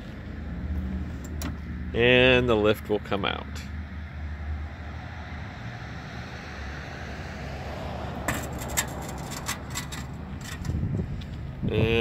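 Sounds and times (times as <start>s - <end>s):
metallic clicks and knocks: 8.3s - 10.8s.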